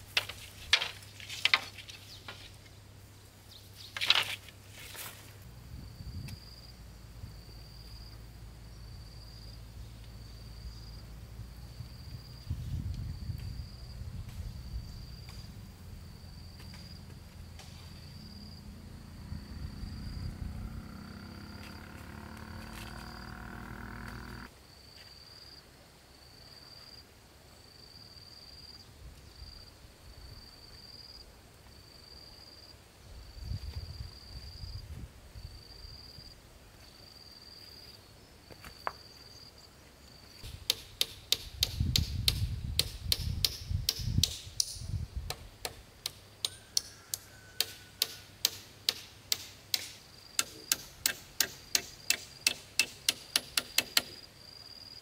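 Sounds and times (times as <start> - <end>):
hammer striking wood: 40.5 - 54.2.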